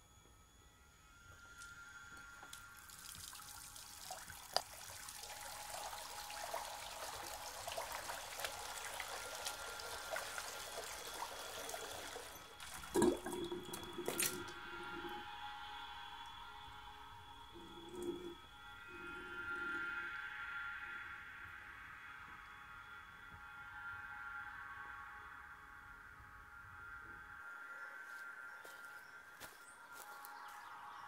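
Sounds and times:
tap water running into sink: 2.5s - 15.2s, 17.6s - 18.4s
water splashed onto face: 6.4s - 14.6s.

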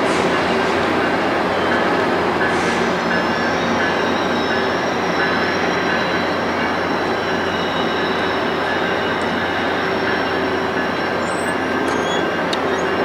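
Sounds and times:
train cars rolling on track: 0.0s - 13.0s
high wheel squeal: 3.2s - 13.0s.

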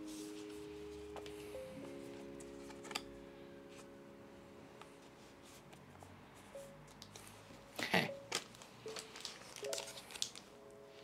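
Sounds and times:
soft background music: 0.0s - 11.0s
foil wrapper crinkling: 7.8s - 10.6s.

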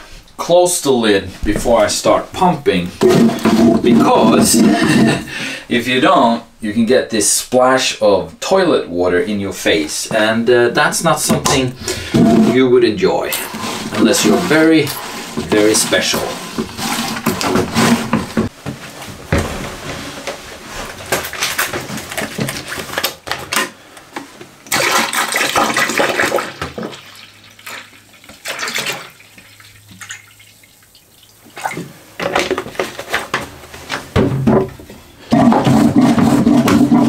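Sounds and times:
water gurgling and splashing: 24.7s - 31.9s
toilet flushing: 24.7s - 32.0s.

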